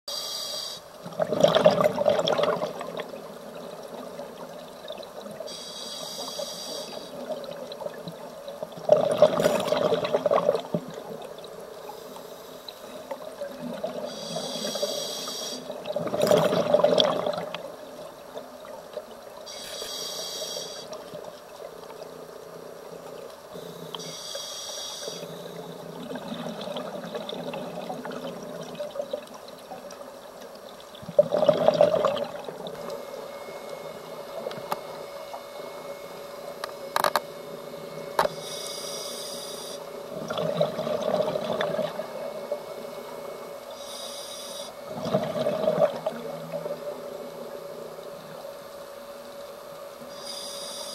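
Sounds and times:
regulator hissing inhalations: 0:00.1 - 0:00.9, 0:05.5 - 0:07.2, 0:14.1 - 0:15.7, 0:19.5 - 0:21.0, 0:23.6 - 0:25.6, 0:38.3 - 0:39.9, 0:43.7 - 0:44.8, 0:50.1 - 0:50.9
exhaled bubbles rushing: 0:01.0 - 0:05.4, 0:07.1 - 0:11.4, 0:13.2 - 0:14.1, 0:15.7 - 0:18.9, 0:25.7 - 0:29.9, 0:31.0 - 0:36.6, 0:40.0 - 0:43.3, 0:44.8 - 0:47.8.

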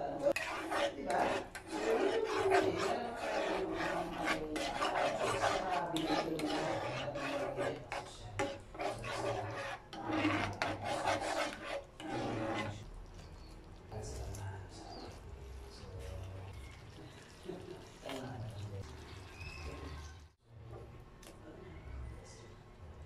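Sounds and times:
metal spoon scraping a frying pan: 0:00.3 - 0:12.9.

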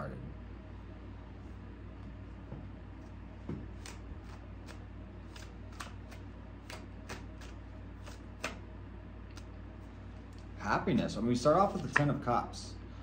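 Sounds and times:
cards being shuffled: 0:03.6 - 0:08.6.

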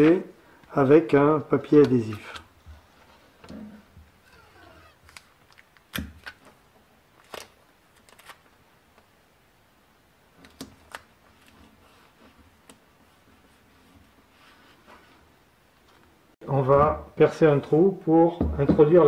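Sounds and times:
adhesive tape pulled and torn: 0:04.3 - 0:06.5.

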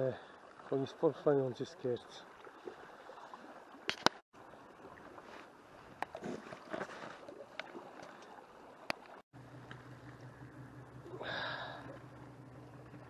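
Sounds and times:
water lapping against rocks: 0:02.1 - 0:10.3.

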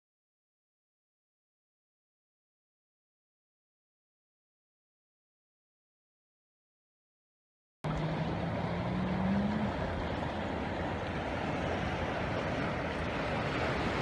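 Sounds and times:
floodwater rushing: 0:07.8 - 0:14.0
low hum: 0:07.8 - 0:14.0.

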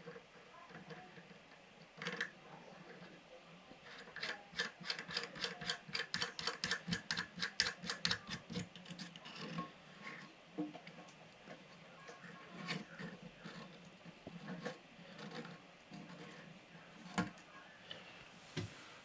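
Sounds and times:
plastic locknut clicking on threads: 0:04.1 - 0:08.7.

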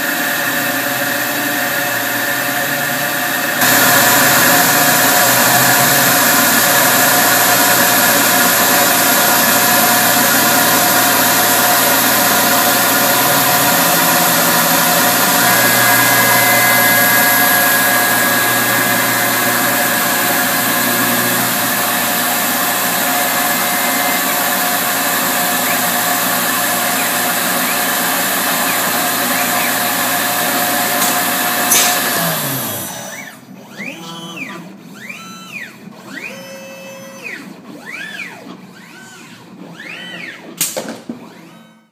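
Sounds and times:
mill spindle humming: 0:00.0 - 0:41.9
stepper motors whining: 0:00.0 - 0:41.9.

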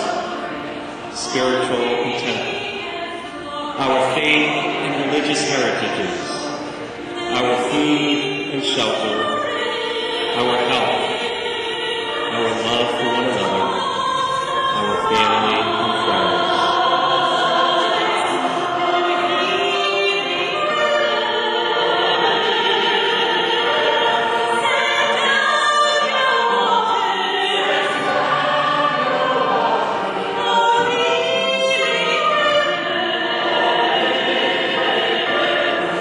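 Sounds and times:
choir singing: 0:00.0 - 0:36.0.

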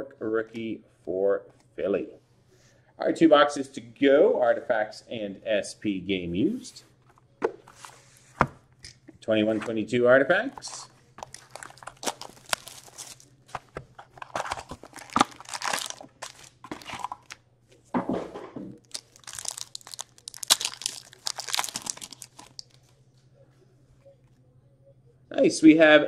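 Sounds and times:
foil wrappers crinkling: 0:10.6 - 0:17.4, 0:18.8 - 0:22.9
cardboard tearing: 0:11.2 - 0:17.4, 0:18.9 - 0:22.6.

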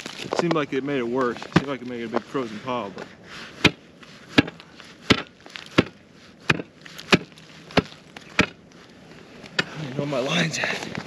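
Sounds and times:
tool chopping ice: 0:03.6 - 0:08.6.

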